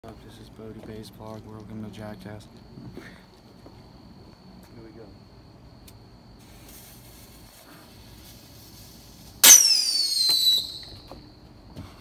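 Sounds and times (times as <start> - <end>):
firework sharp cracks: 6.4 - 11.1
firework shrill whistle: 6.4 - 11.4.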